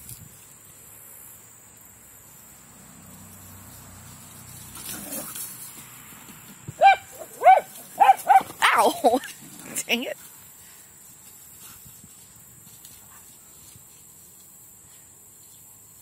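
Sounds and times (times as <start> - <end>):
dog barking high-pitched: 6.8 - 9.0.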